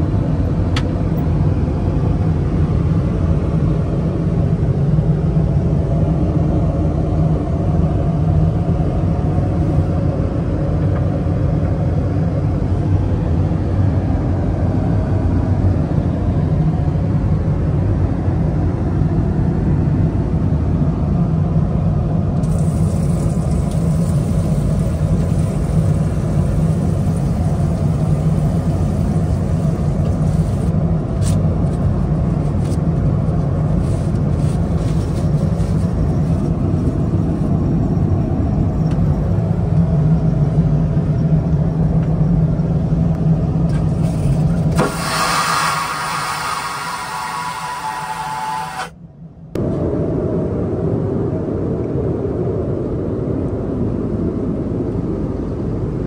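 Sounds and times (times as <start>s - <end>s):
airliner drone in flight: 0.0s - 56.0s
higher hiss: 44.7s - 48.9s.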